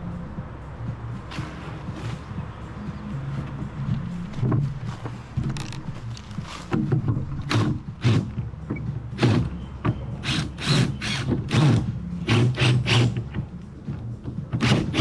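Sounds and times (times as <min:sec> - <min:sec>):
cordless drill driving screws: 0:10.2 - 0:13.2.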